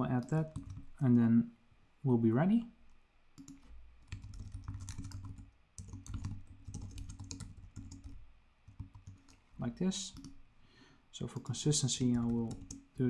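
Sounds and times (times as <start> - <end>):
typing on computer keyboard: 0.2 - 0.9, 3.4 - 9.4, 10.1 - 10.4, 11.3 - 13.0.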